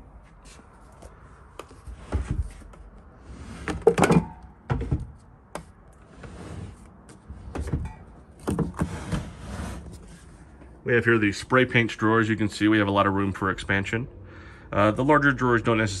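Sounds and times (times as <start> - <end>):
drawers sliding and knocking: 1.9 - 10.3.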